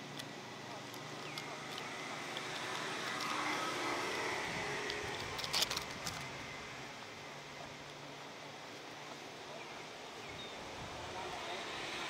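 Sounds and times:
vehicle passing: 0:01.4 - 0:06.9, 0:10.9 - 0:12.0.

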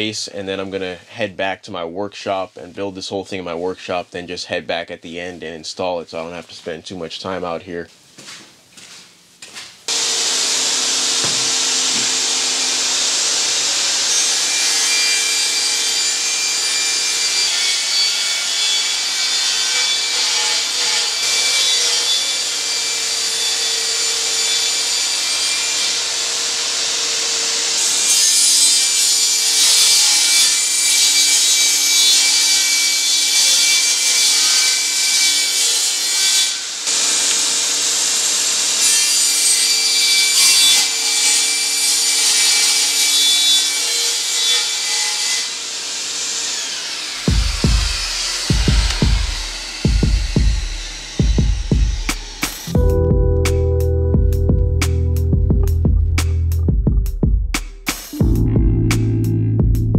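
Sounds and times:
table saw cutting plywood: 0:09.9 - 0:52.8.

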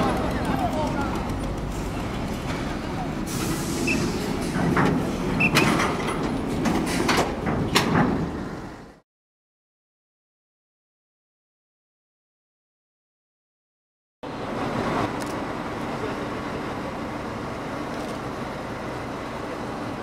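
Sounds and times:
diesel truck engine running: 0:00.0 - 0:07.6, 0:14.2 - 0:20.0.

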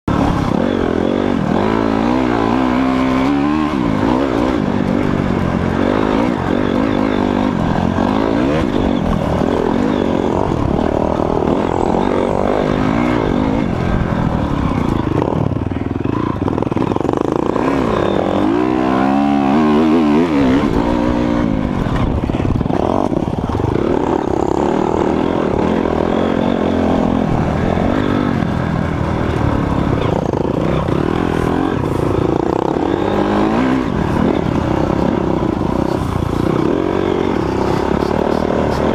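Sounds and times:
dirt bike engine revving: 0:00.1 - 0:38.9.

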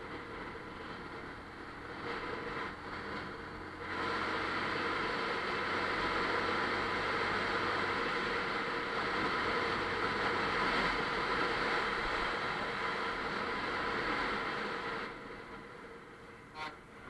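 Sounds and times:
wind and road noise: 0:00.0 - 0:17.0.

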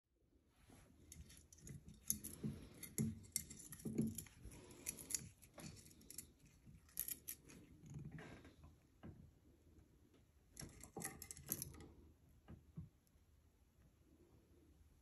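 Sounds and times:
metal chain links clicking: 0:01.1 - 0:07.6.

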